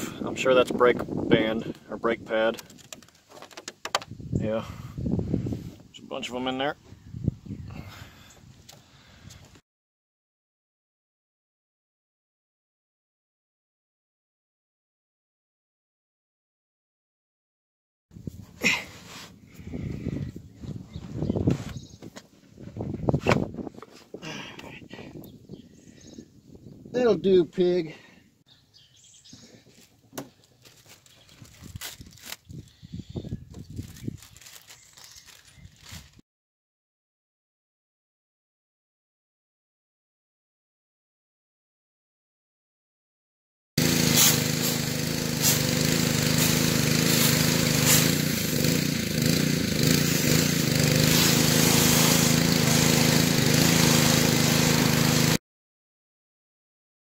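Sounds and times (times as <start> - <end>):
handling clicks and knocks: 2.5 - 4.1
plastic bag rustling: 30.4 - 32.7, 33.7 - 36.2
small engine droning: 43.8 - 55.4
water jet spraying: 44.0 - 49.3, 49.9 - 55.4.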